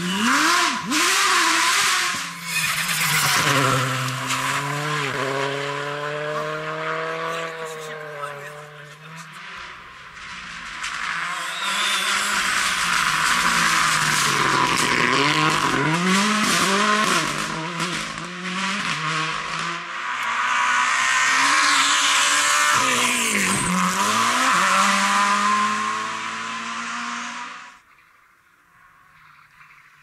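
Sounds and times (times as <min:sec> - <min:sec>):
rally car engines revving: 0:00.0 - 0:27.8
exhaust pops and crackles: 0:09.1 - 0:18.4.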